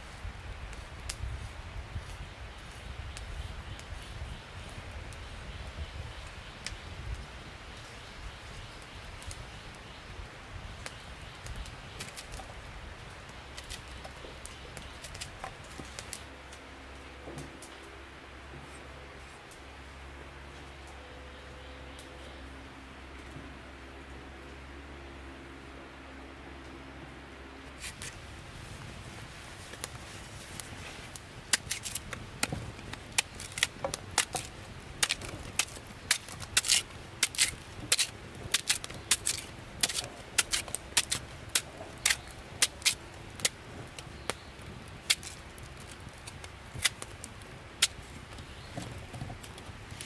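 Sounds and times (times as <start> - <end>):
machete cutting plant stalk: 33.2 - 41.2.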